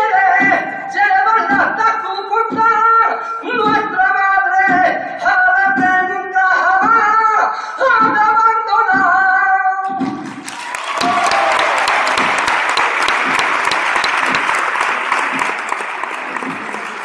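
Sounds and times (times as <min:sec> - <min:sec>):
audience applauding: 0:10.4 - 0:17.0.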